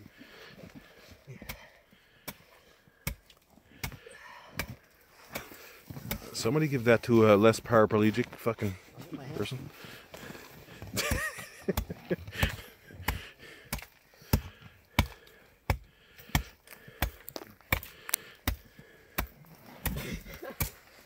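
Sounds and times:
axe chopping into snow and ice: 0:19.2 - 0:20.8.

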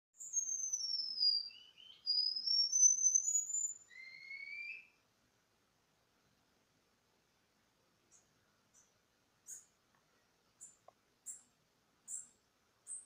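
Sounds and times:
bird singing high whistles: 0:00.2 - 0:05.0.

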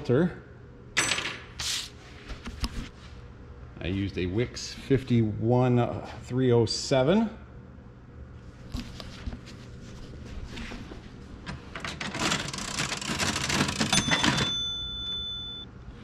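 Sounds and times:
cash register keys clattering: 0:11.5 - 0:15.6
cash register bell ringing: 0:12.0 - 0:15.7.

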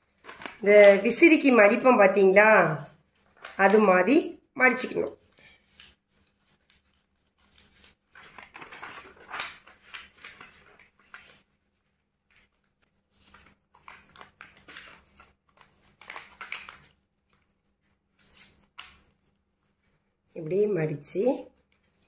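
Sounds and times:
paper rustling and creasing: 0:00.0 - 0:01.5, 0:03.0 - 0:03.9, 0:05.1 - 0:20.2.

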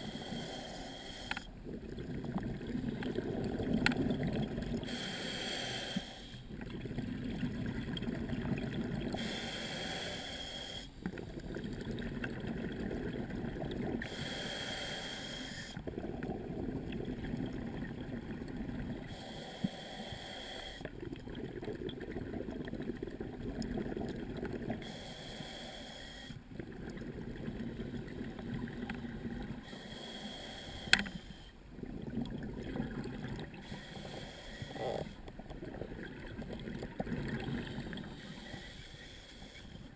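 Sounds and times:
diver inhaling through regulator: 0:00.0 - 0:02.2, 0:04.6 - 0:06.6, 0:09.1 - 0:11.0, 0:13.9 - 0:16.4, 0:18.8 - 0:20.9, 0:24.6 - 0:26.4, 0:27.7 - 0:31.6, 0:33.4 - 0:35.3, 0:37.2 - 0:39.9.

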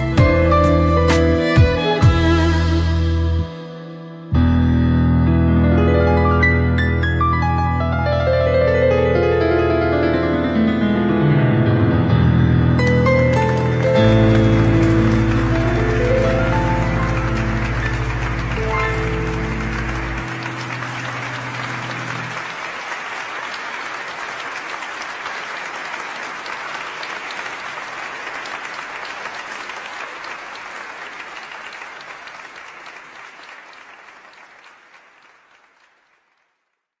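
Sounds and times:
held music notes: 0:12.6 - 0:22.5
audience applause: 0:12.8 - 0:36.7.

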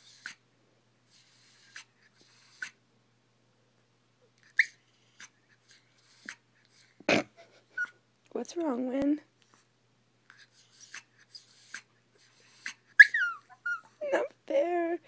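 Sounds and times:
dog whining: 0:04.4 - 0:08.0, 0:10.3 - 0:14.4.

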